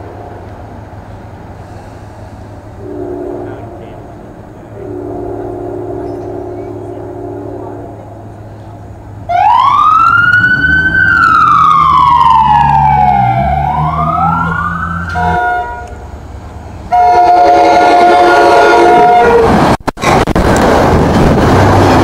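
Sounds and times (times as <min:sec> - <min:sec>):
low engine rumble: 0:00.0 - 0:18.0
train horn: 0:02.8 - 0:04.0, 0:04.7 - 0:07.8, 0:15.1 - 0:16.0, 0:16.9 - 0:19.6
police siren wailing: 0:09.3 - 0:15.9.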